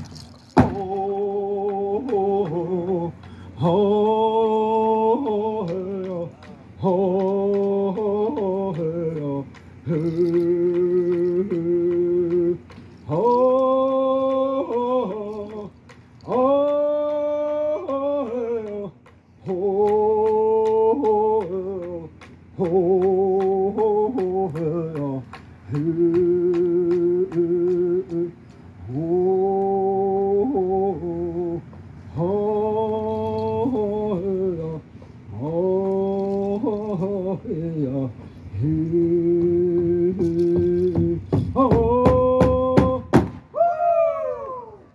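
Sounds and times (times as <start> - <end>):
person singing: 0.1 - 43.2
hand drum beat: 39.8 - 43.2.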